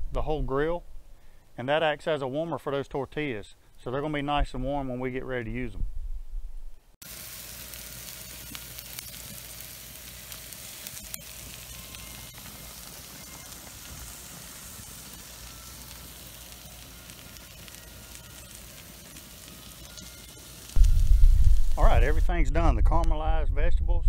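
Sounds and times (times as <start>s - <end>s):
meat sizzling on a grill: 7.0s - 22.3s
embers crackling: 7.0s - 23.3s.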